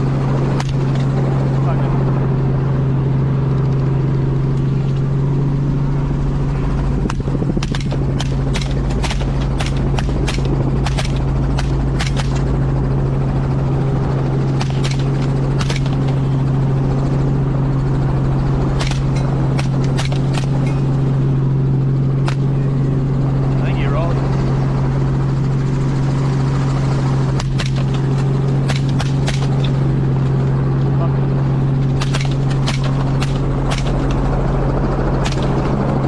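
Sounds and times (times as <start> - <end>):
helicopter drone from inside cabin: 0.0 - 36.0
rapid rifle shots: 0.5 - 1.1, 7.1 - 12.6, 14.4 - 16.4, 18.6 - 21.0, 27.3 - 29.8, 31.8 - 34.3, 35.2 - 35.9.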